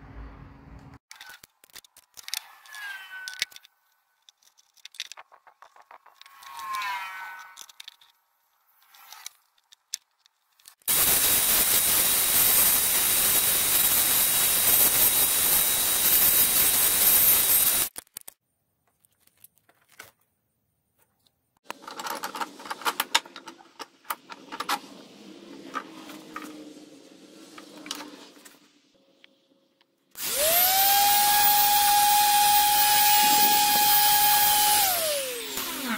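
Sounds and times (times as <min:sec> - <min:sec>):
scraping and clicks on wood: 0:01.1 - 0:10.8
woodworking power tool: 0:10.9 - 0:17.9, 0:30.2 - 0:35.9.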